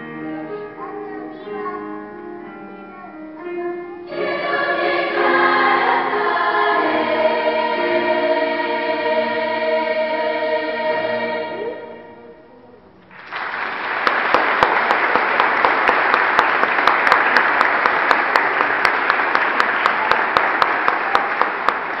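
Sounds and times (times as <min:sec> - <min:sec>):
children's choir singing: 0:03.9 - 0:12.7
audience applause: 0:13.1 - 0:22.0.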